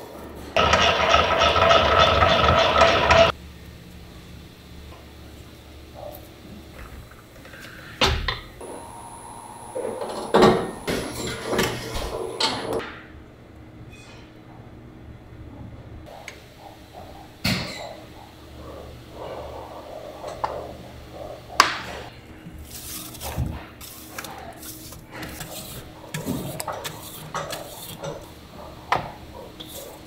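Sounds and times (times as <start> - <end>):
low machine hum: 8.6 - 13.8.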